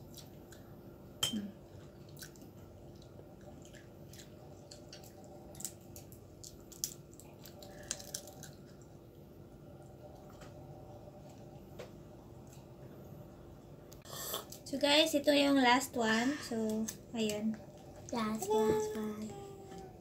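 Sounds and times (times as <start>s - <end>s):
chewing: 1.7s - 9.0s
crab shell cracking: 4.8s - 8.9s.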